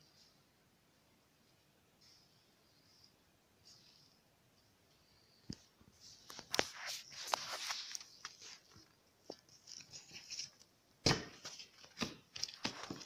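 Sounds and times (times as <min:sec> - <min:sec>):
hands rolling dough on plastic: 0:05.5 - 0:13.0.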